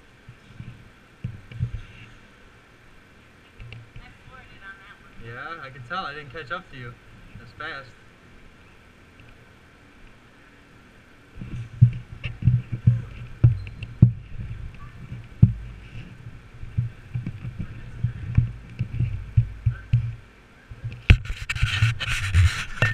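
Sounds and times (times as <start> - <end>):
camera handling thumps: 20.9 - 21.4.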